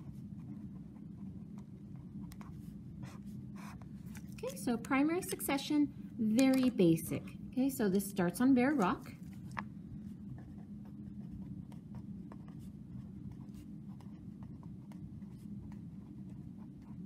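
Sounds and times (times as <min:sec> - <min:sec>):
pen scratching on paper: 0:00.0 - 0:04.5, 0:10.3 - 0:17.0
steady low hum: 0:00.0 - 0:17.0.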